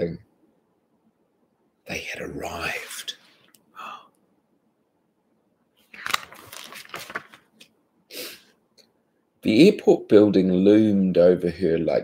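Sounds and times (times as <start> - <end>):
book pages turning: 5.8 - 7.7.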